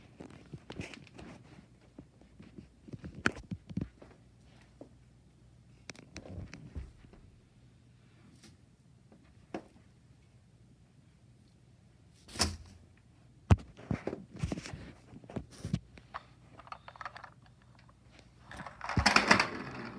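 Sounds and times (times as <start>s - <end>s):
toys knocking and clicking: 18.5s - 19.9s.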